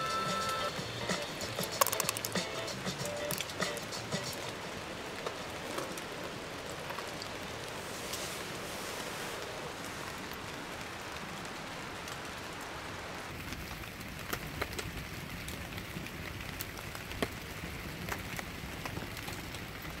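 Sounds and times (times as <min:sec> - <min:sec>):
campfire crackling and popping: 0:00.0 - 0:08.2, 0:10.3 - 0:20.0
steady hiss: 0:00.0 - 0:13.3.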